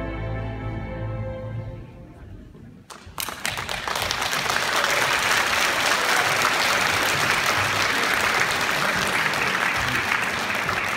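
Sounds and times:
audience applauding: 2.9 - 10.9.

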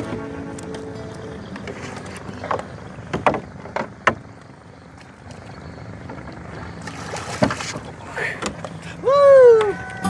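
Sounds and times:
fish splashing in water: 6.4 - 8.1.

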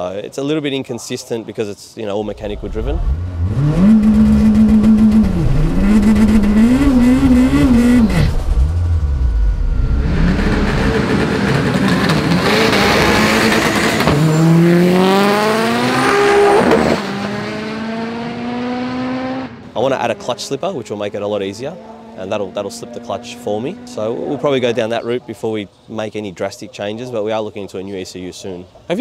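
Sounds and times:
car engine revving and roaring: 2.2 - 24.5.

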